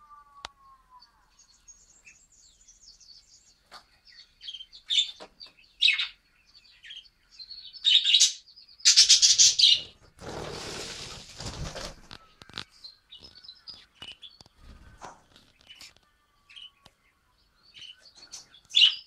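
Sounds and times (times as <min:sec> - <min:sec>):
budgerigars chirping: 0:01.6 - 0:10.0, 0:17.7 - 0:19.0
rustling: 0:09.8 - 0:13.4.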